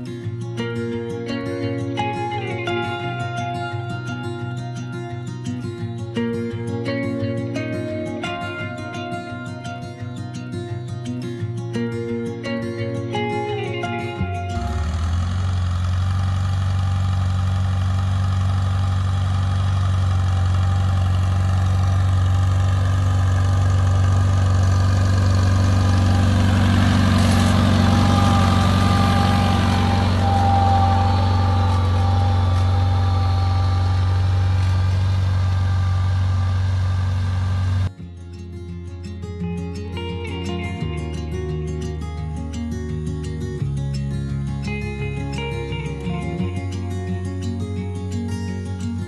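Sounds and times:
tractor engine running: 14.2s - 37.9s.

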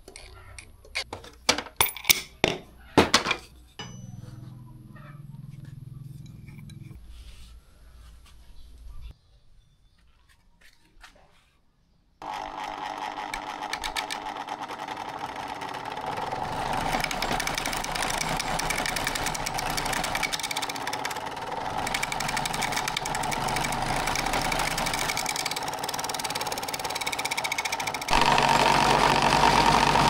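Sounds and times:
electric motor hum: 12.2s - 30.0s
chisel rasping on spinning wood: 13.1s - 30.0s.

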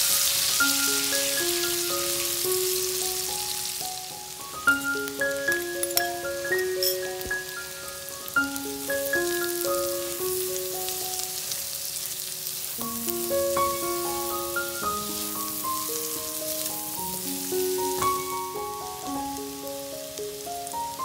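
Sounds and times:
potatoes sizzling in oil: 0.0s - 21.0s
bell-like background music: 4.7s - 8.0s.

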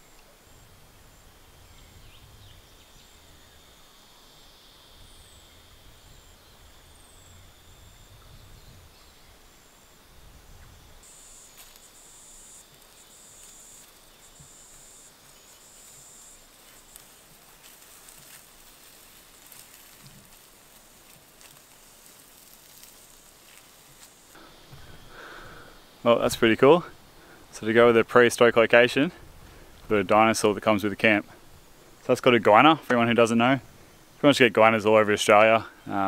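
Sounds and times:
insect buzzing bursts: 0.0s - 32.5s
high insect drone: 0.0s - 36.0s
faint rustles and clicks: 11.0s - 25.1s.

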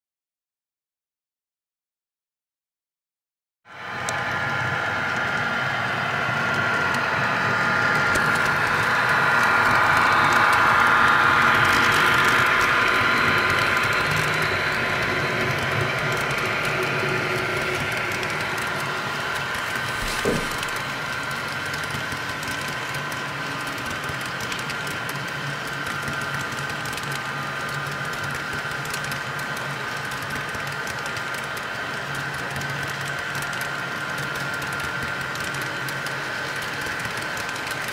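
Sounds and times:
model train rumbling past: 7.3s - 26.0s.

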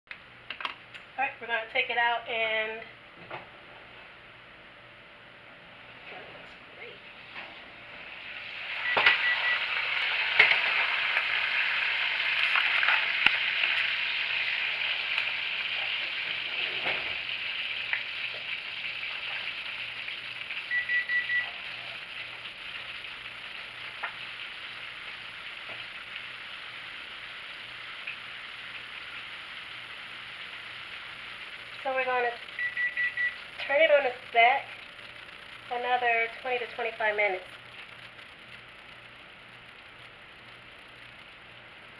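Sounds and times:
oil sizzling in a pan: 6.8s - 41.9s
high electronic beeps: 8.8s - 9.8s, 20.7s - 21.6s, 32.6s - 33.4s.

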